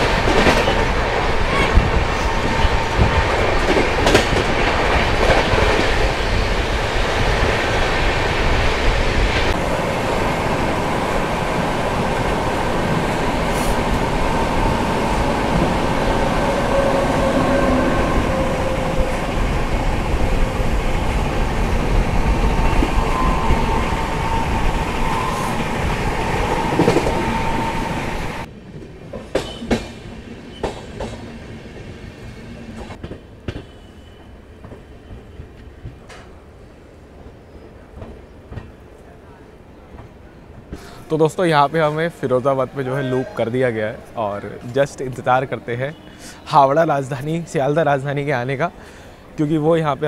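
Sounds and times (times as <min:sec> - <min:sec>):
train rumble on board: 0:00.0 - 0:41.0
faint high squealing: 0:22.3 - 0:28.5.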